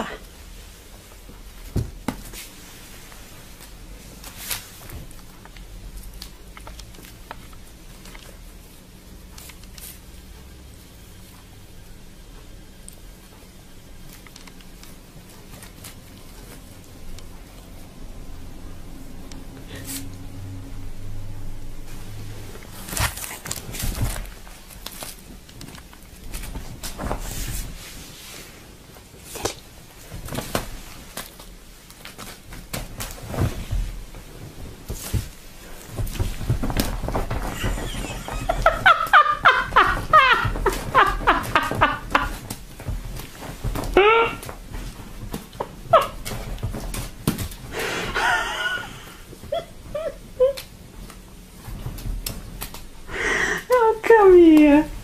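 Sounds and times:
short rustle: 21.8s - 48.2s.

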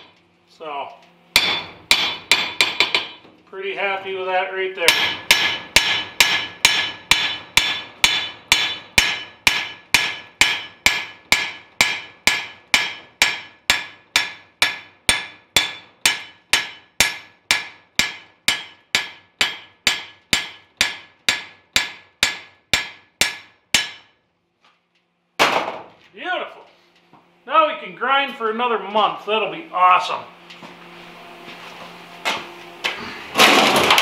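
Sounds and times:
hammer striking steel anvil: 1.3s - 3.2s, 4.8s - 24.2s.

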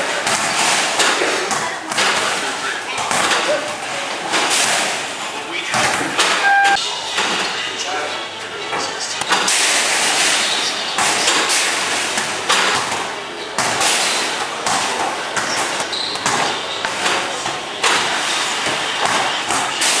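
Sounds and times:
basketballs thudding on backboard: 12.2s - 14.0s, 14.6s - 19.8s.

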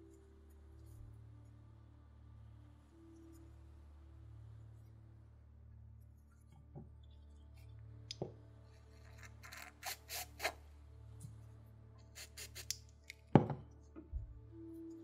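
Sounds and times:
aerosol spray hisses: 9.8s - 10.6s, 12.2s - 12.8s.

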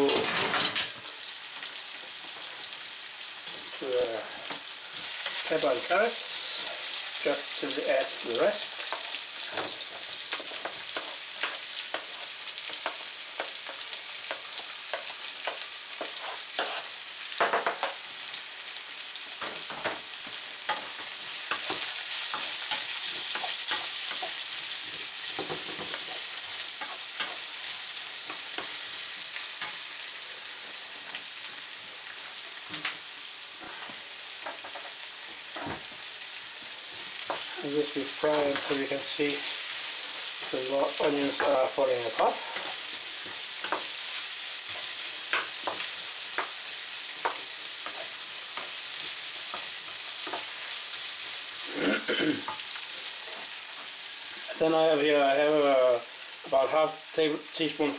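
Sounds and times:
vegetables sizzling in oil: 0.0s - 57.9s
wooden spatula scraping pan: 15.3s - 17.0s, 37.0s - 46.5s.

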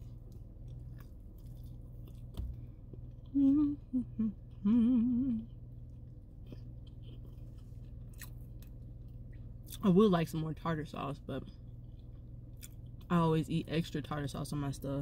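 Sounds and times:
chewing and mouth clicks: 0.0s - 3.7s, 5.3s - 9.8s, 11.4s - 13.1s
woman humming with closed mouth: 3.3s - 5.5s.

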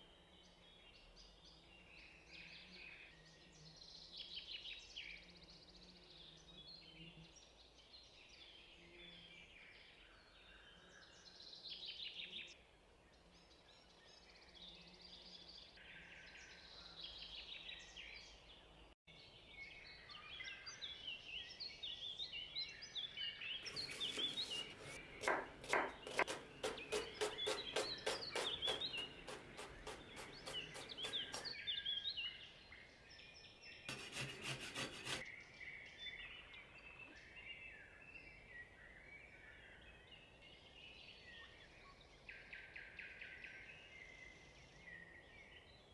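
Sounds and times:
birds chirping faintly: 0.0s - 45.9s
knife chopping on cutting board: 23.7s - 31.5s, 33.9s - 35.2s.

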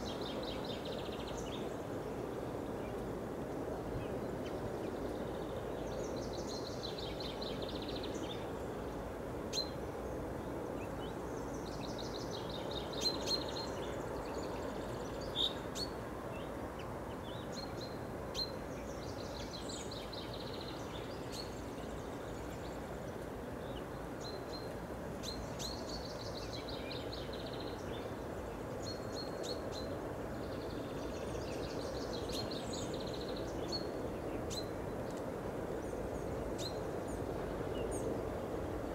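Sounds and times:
low background noise: 0.0s - 38.9s
songbirds chirping and trilling: 0.0s - 38.9s.

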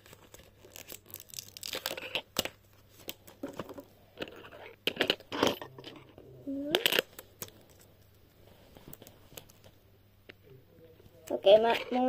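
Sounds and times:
paper crinkling and tearing: 0.0s - 3.3s.

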